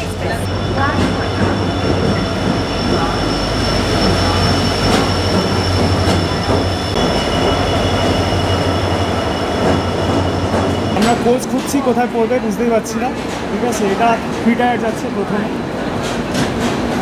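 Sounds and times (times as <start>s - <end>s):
high-pitched whining squeal: 0.0s - 12.0s
diesel locomotive engine rumble: 0.0s - 17.0s.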